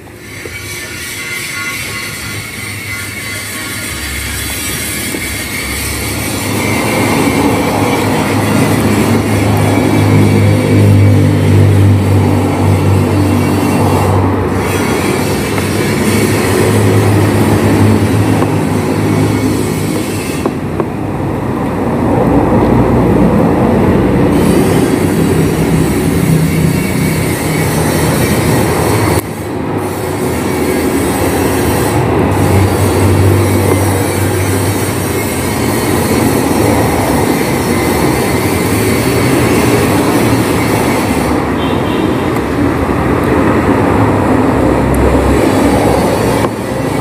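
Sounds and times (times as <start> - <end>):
dark droning music: 0.0 - 20.4.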